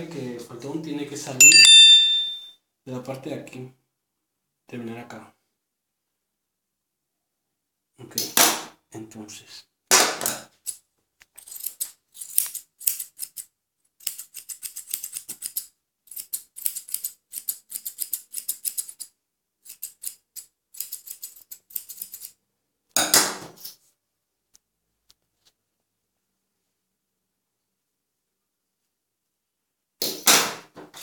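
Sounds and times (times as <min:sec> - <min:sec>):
scissors snipping hair: 0:11.4 - 0:22.4.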